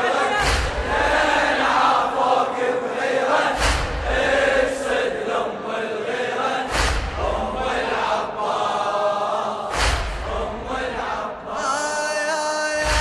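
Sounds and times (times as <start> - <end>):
choir chanting: 0.0 - 13.0
deep percussive thump: 0.4 - 1.4, 3.5 - 4.6, 6.7 - 7.7, 9.7 - 10.8.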